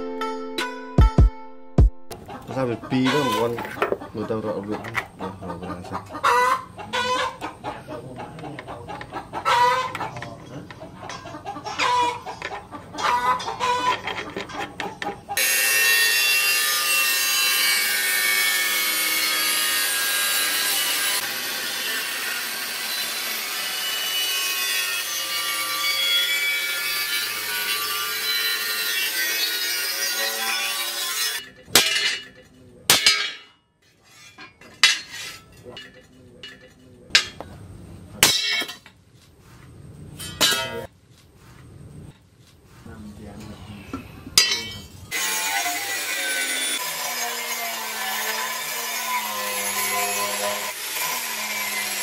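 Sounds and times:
chickens clucking: 2.1s - 15.4s
angle grinder cutting steel: 15.4s - 37.4s, 44.4s - 52.0s
hammer blows on anvil: 37.2s - 37.5s, 44.4s - 44.9s.

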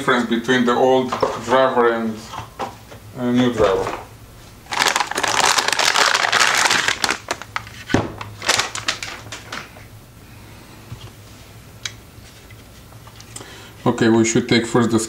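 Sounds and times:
anti-static bag crinkling: 4.5s - 9.9s.

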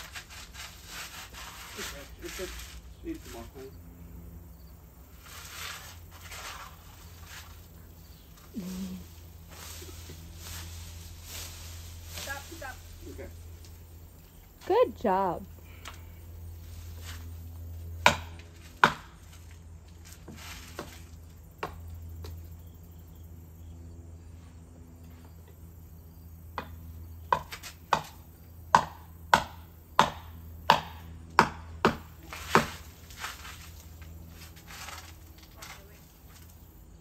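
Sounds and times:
sharp blows on tree trunk: 18.0s - 19.2s, 26.5s - 32.8s.

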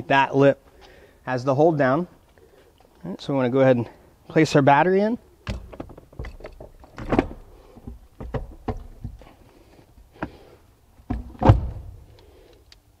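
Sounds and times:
car battery knocks and thuds: 5.4s - 9.3s, 11.0s - 12.0s.

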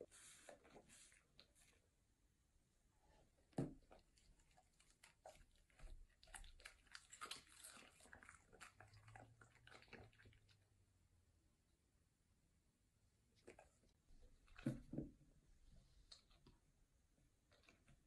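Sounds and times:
dog chewing: 3.8s - 10.6s.

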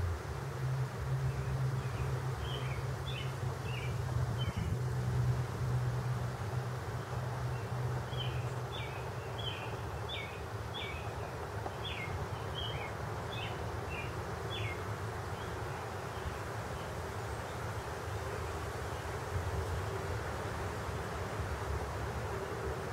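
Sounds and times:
steady low rumble: 0.0s - 10.7s.

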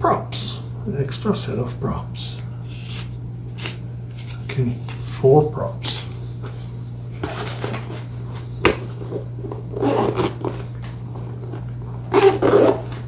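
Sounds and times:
bag rustling: 7.2s - 13.0s.

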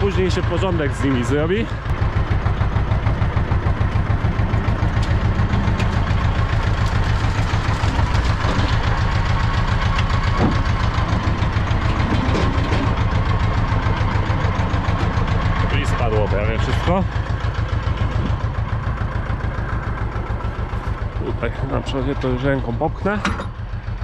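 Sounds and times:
diesel tractor engine running: 0.0s - 24.0s.

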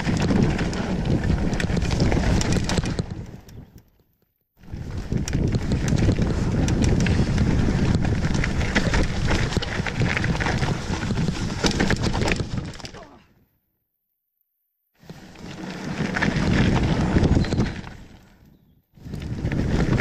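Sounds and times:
bike tyres rumbling on dirt: 0.0s - 3.8s, 4.6s - 13.2s, 15.0s - 20.0s
wind buffeting microphone: 4.6s - 12.8s, 16.2s - 18.0s, 18.6s - 20.0s.

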